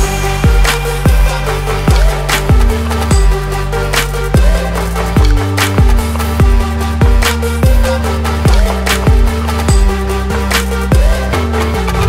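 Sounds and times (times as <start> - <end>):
heavy kick drum: 0.0 - 3.5, 4.3 - 10.0, 10.9 - 11.3
electronic music: 0.0 - 12.0.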